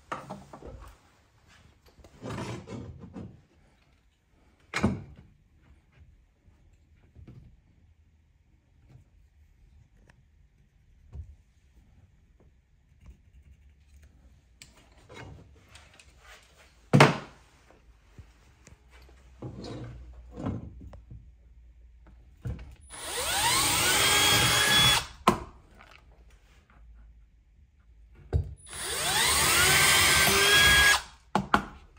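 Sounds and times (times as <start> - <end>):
cordless drill boring into wall: 22.8 - 25.2, 28.6 - 31.2.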